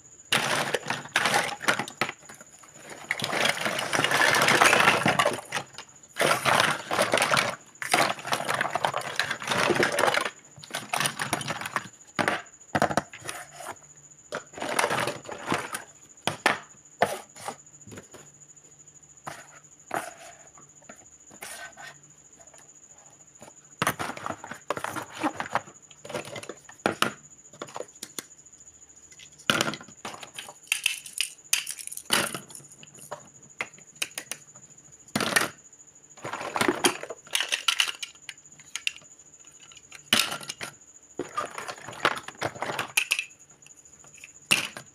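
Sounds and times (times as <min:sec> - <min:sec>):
plastic toys clattering: 0:00.3 - 0:16.7, 0:23.4 - 0:28.2, 0:29.1 - 0:34.5, 0:35.1 - 0:35.6, 0:36.2 - 0:43.4, 0:44.0 - 0:44.9.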